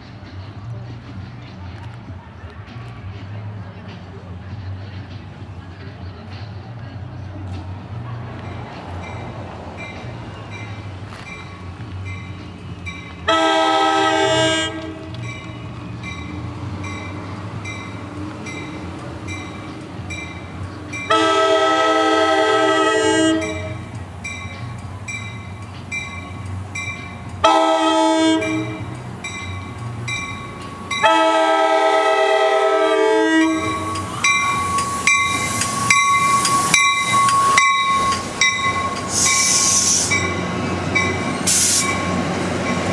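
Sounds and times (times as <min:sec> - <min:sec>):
crossing bell dinging: 0:08.0 - 0:42.9
train air horn: 0:13.3 - 0:15.2, 0:21.1 - 0:23.8, 0:27.4 - 0:28.9, 0:31.0 - 0:34.0, 0:39.1 - 0:40.3, 0:41.4 - 0:42.0
wheel squeal: 0:33.4 - 0:40.4
train wheels clattering: 0:33.4 - 0:42.9.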